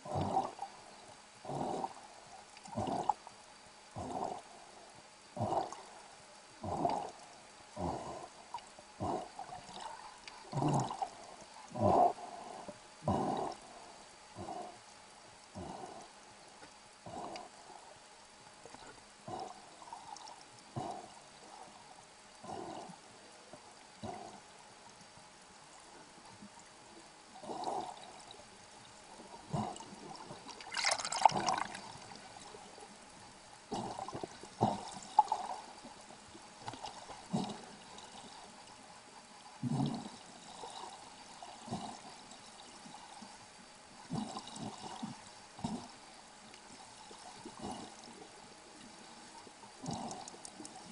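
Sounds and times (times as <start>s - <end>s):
underwater gurgles and sloshes: 0.0s - 50.9s
rush of bubbles: 30.5s - 32.1s.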